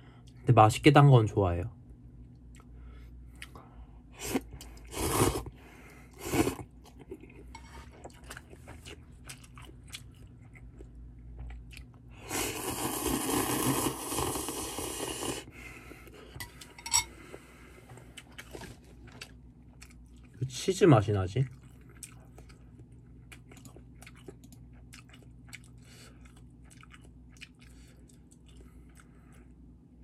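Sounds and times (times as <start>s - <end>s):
soft chewing: 2.2s - 12.2s, 15.8s - 20.6s, 21.4s - 30.0s
noodles slurped: 4.2s - 5.6s, 6.2s - 6.7s, 12.2s - 15.5s.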